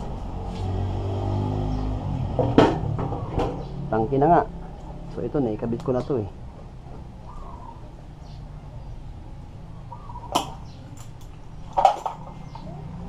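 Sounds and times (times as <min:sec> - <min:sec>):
metal motorcycle parts clattering: 0:10.4 - 0:12.7.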